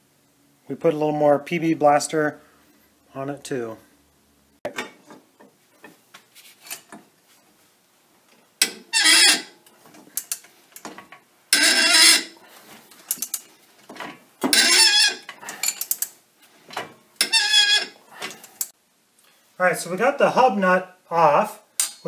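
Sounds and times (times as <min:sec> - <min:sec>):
strained metal squeals: 0:08.9 - 0:09.6, 0:11.5 - 0:12.4, 0:14.4 - 0:15.3, 0:17.2 - 0:18.0
small metal clicks and knocks: 0:09.9 - 0:11.2, 0:12.9 - 0:14.6.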